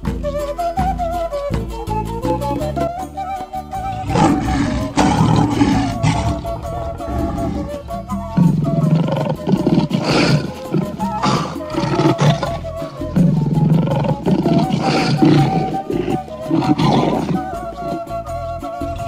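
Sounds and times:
folk music with wavering melody: 0.0 - 19.0
lion roaring: 3.9 - 18.0.

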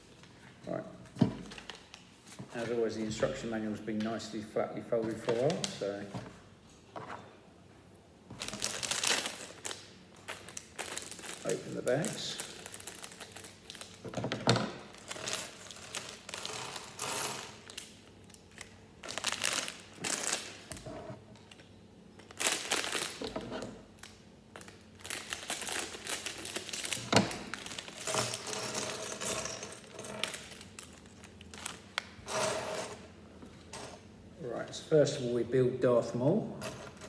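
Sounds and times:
plastic bags crinkling: 8.3 - 14.2, 14.8 - 20.8, 22.2 - 32.2.

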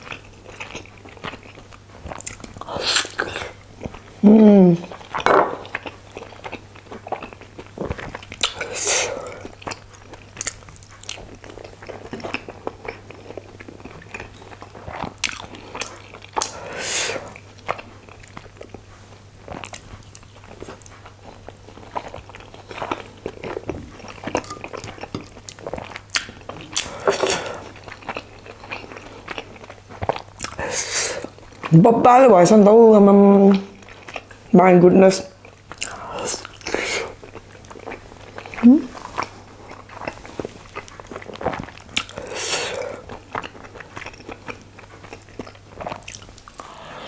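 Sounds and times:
close-miked chewing: 0.0 - 4.2, 4.8 - 47.0
lip smacks and mouth clicks: 21.8 - 27.0.

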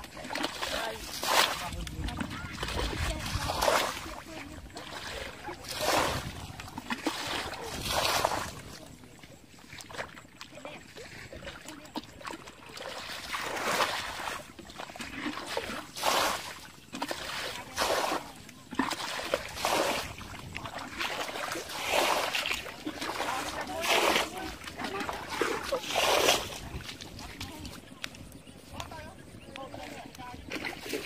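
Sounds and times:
muddy water splashing: 0.0 - 31.0.

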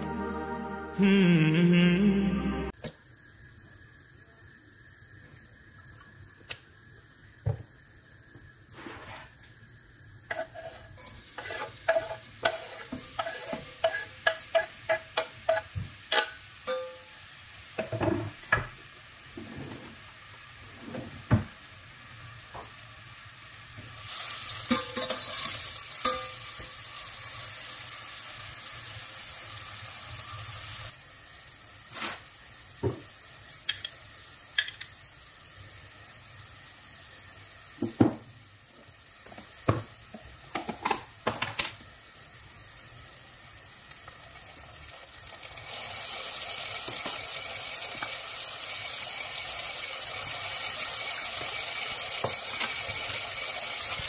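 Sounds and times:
onion sizzling in oil: 2.8 - 54.0
utensil clinking against pot: 11.4 - 17.0.

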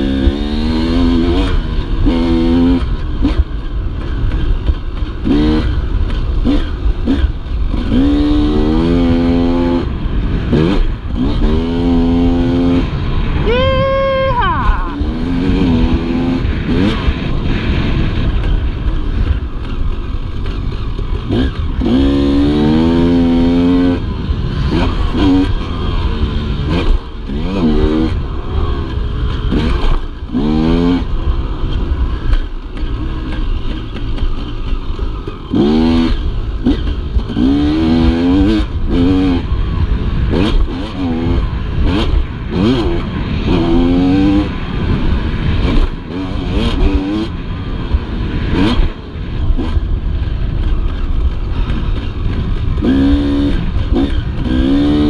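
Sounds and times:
dirt bike engine revving: 0.0 - 55.0
steady rushing noise: 0.0 - 55.0.

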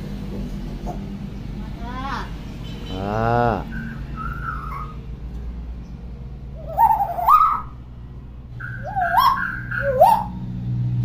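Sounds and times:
myna whistling and calling: 3.6 - 5.0, 6.6 - 7.8, 8.6 - 10.4.

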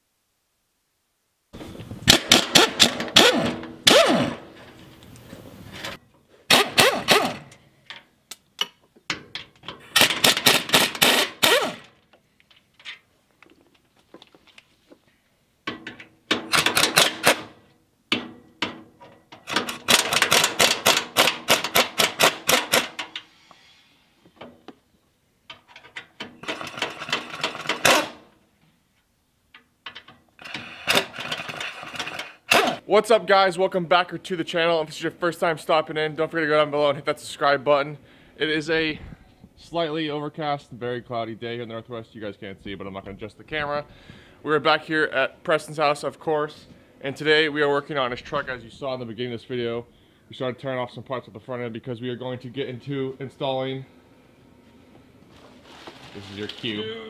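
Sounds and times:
pneumatic impact wrench rattling: 2.0 - 7.6, 9.1 - 12.0, 15.7 - 23.4, 25.6 - 28.3, 30.0 - 32.8.

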